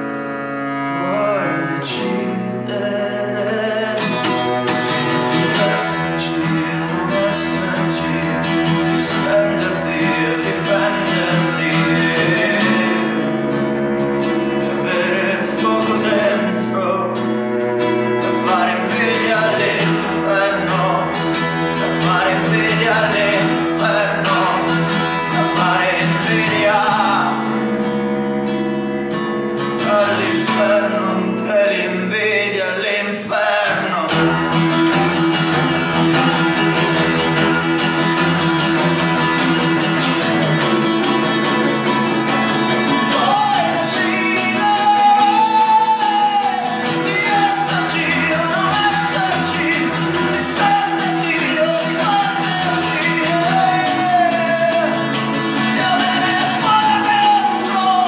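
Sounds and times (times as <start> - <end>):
acoustic guitar strumming: 0.0 - 58.0
cello bowing a melody: 0.0 - 58.0.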